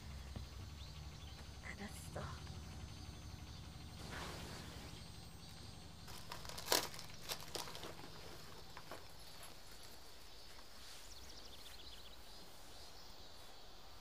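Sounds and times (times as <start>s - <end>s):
crinkles and clicks: 5.5s - 10.7s.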